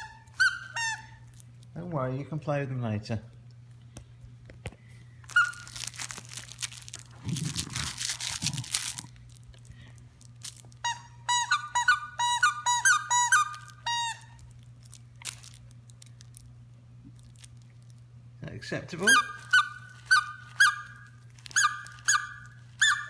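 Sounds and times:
toy squeaker squeaking: 0.0s - 1.2s, 5.3s - 5.9s, 10.8s - 14.4s, 19.0s - 23.0s
rustling: 4.8s - 10.9s.

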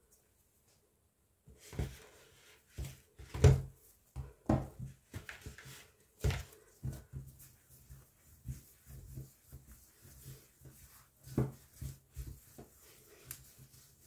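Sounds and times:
hands rubbing dough: 1.5s - 14.0s.

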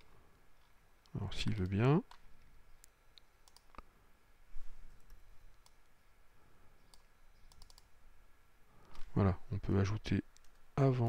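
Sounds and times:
faint room hiss: 0.0s - 11.0s
computer mouse clicking: 2.8s - 3.9s, 4.9s - 5.9s, 6.8s - 7.9s, 10.3s - 10.7s.

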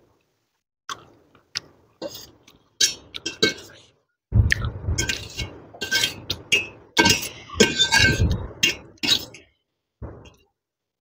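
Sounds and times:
utensils clinking and scraping on dish: 2.1s - 3.9s, 5.0s - 9.5s.

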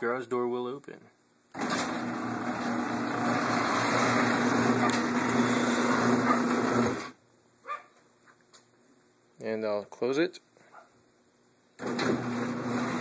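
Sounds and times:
garage door opener droning: 1.5s - 7.2s, 11.8s - 13.0s.

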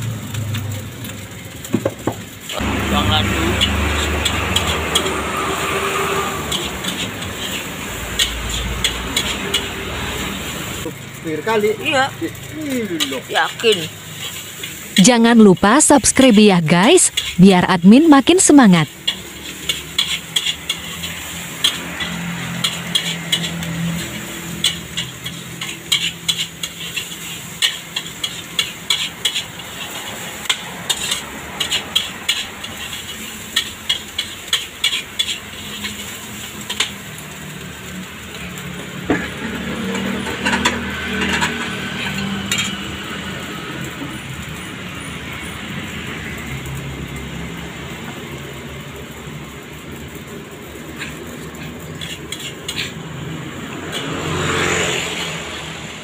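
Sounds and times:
steady sizzle: 0.0s - 56.0s
metal spatula scraping a wok: 3.0s - 10.9s, 12.4s - 15.0s, 17.1s - 17.4s, 19.0s - 37.1s, 39.1s - 42.9s, 50.8s - 55.6s.

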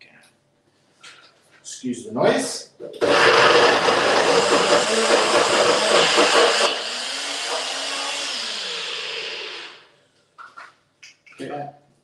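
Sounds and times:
food processor running: 3.0s - 9.9s.

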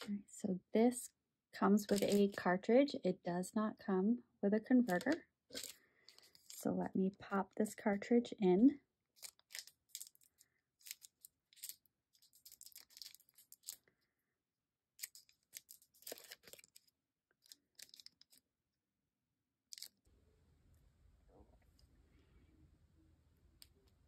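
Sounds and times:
plastic packet crinkling and tearing: 1.8s - 2.4s, 4.8s - 6.6s, 9.1s - 13.9s, 15.0s - 18.4s, 19.7s - 20.0s
small clicks and rustles: 9.2s - 13.9s, 15.0s - 18.4s.

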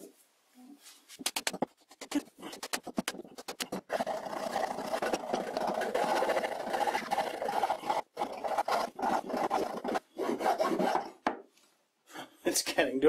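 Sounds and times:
file scraping wood: 1.2s - 11.2s.

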